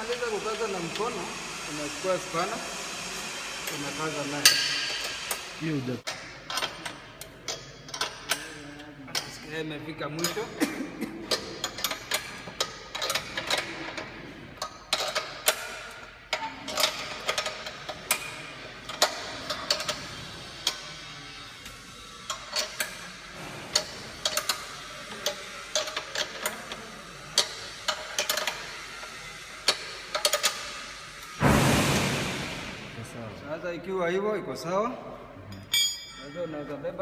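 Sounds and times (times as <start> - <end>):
spanner clicking on metal nuts: 4.4 - 9.5, 11.3 - 20.9, 21.6 - 23.0, 23.7 - 31.4.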